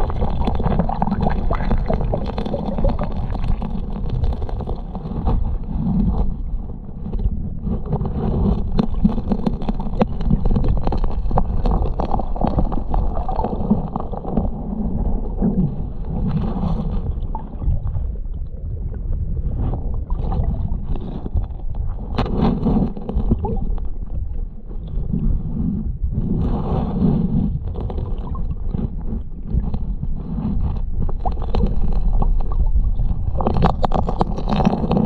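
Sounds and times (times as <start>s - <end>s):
stones and gravel scraping: 0.0s - 17.3s, 20.8s - 24.0s, 25.0s - 35.0s
underwater river current rumble: 0.0s - 35.0s.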